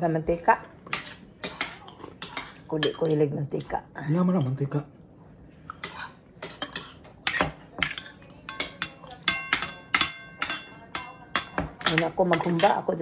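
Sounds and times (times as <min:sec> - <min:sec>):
cutlery scraping on plates: 0:00.8 - 0:03.8, 0:05.7 - 0:13.0.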